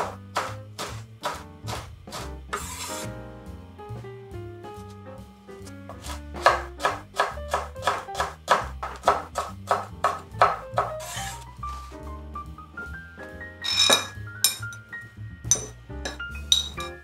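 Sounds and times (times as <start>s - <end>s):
knife chopping on wooden board: 0.0s - 3.1s, 5.9s - 11.4s
background music: 0.0s - 17.0s.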